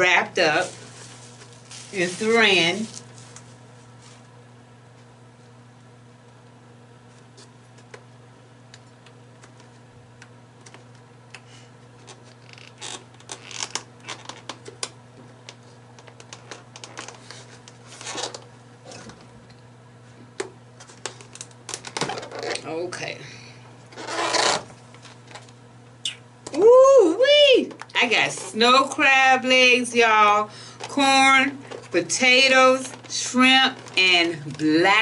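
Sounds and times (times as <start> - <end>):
faint steady hum: 0.0 - 35.0
cling wrap crinkling and clicking: 0.4 - 4.3, 12.0 - 18.5, 20.8 - 22.6, 31.6 - 35.0.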